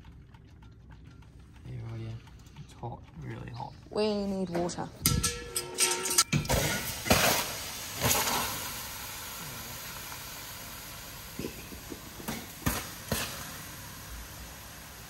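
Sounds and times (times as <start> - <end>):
steam hissing: 6.4 - 15.0
water spray bursts: 6.5 - 11.4.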